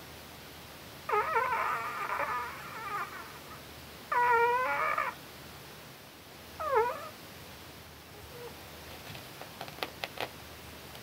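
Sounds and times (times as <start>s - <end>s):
dog whimpering in sleep: 1.1s - 5.2s, 6.6s - 7.2s, 8.1s - 8.6s.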